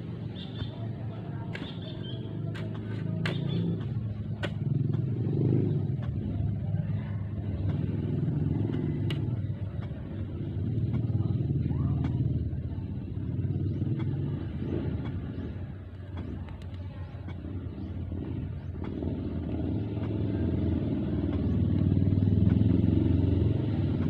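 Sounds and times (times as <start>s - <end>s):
vehicle engine rumbling: 0.0s - 24.0s
sharp ticks: 7.4s - 11.2s, 13.7s - 22.9s.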